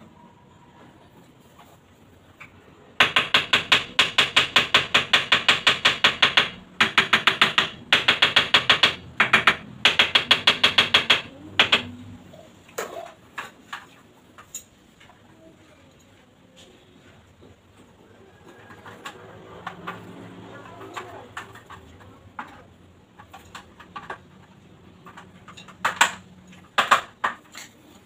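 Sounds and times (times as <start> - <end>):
rapid tapping on tile: 3.0 - 12.0, 23.2 - 26.2, 26.8 - 27.7.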